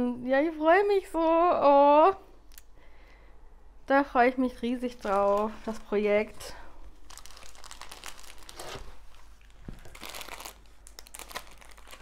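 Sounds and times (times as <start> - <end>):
canvas crinkling: 4.9 - 6.1, 6.9 - 12.0
cover sheet rustling: 4.9 - 6.3, 7.0 - 12.0.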